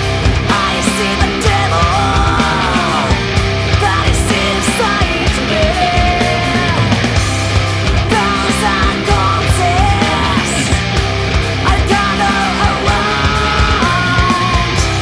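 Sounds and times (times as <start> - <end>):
heavy metal music: 0.0 - 15.0.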